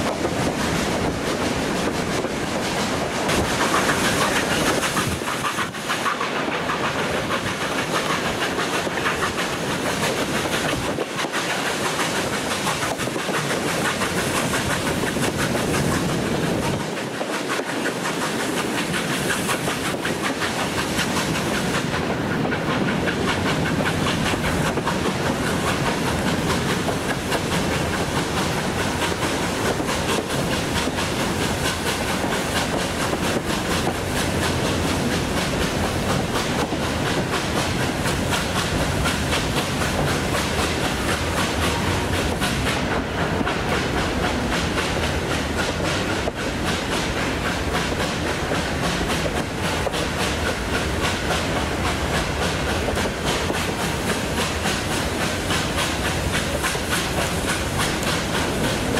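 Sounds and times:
train carriages rumbling: 0:00.0 - 0:58.9
wheels clicking over rail joints: 0:00.0 - 0:58.9.

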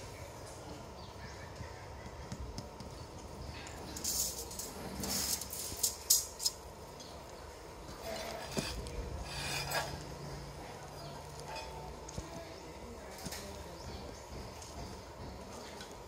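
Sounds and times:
hand tools scraping on ceramic tile: 0:08.1 - 0:10.2.

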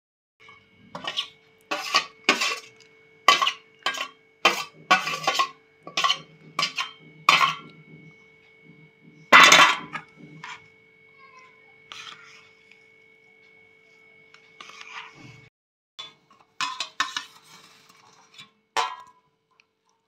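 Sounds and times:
spoon scraping steel bowl: 0:00.9 - 0:08.2, 0:09.3 - 0:10.7, 0:11.9 - 0:12.6, 0:14.6 - 0:19.1.

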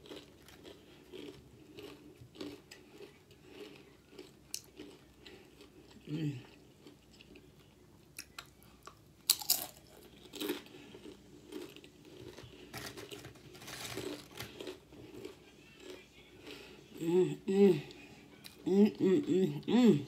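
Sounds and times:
tortilla chips crunching: 0:00.0 - 0:07.5, 0:09.2 - 0:16.8.

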